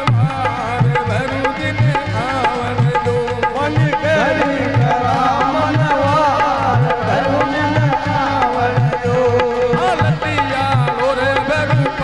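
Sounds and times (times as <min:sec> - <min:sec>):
dholak drum beat: 0:00.0 - 0:12.0
harmonium: 0:00.0 - 0:12.0.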